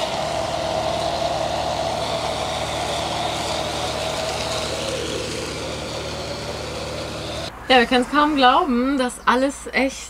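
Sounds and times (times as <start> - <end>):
foam lance spraying: 0.0 - 7.5
pressure pump humming: 0.0 - 7.5.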